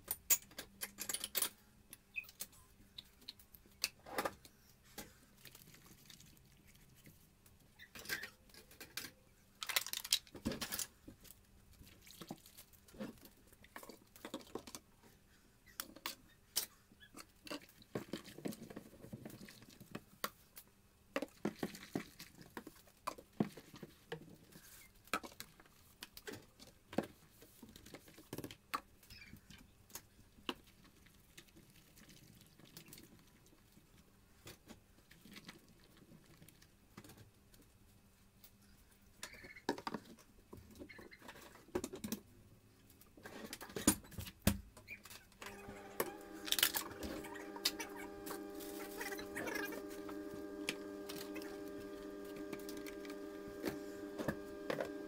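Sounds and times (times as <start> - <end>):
steady multi-pitched hum: 45.5 - 55.0.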